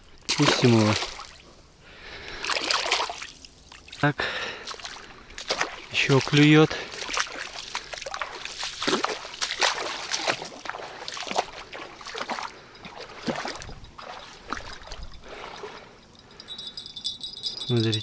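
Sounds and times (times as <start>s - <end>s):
water splashing and dripping: 0.2s - 1.5s, 2.4s - 15.9s
bite bell jingling: 12.6s - 18.0s.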